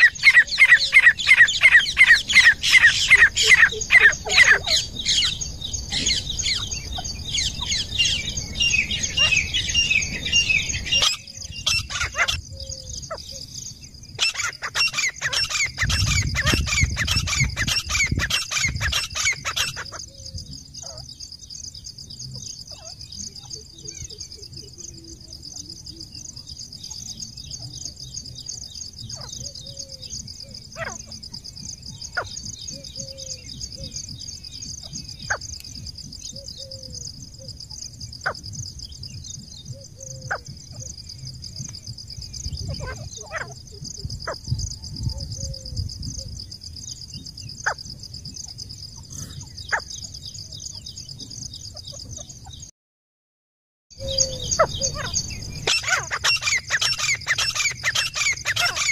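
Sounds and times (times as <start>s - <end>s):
francolins calling shrilly: 0.0s - 13.5s, 14.1s - 21.1s, 42.0s - 46.4s, 54.0s - 58.9s
faint chirp: 0.0s - 52.7s.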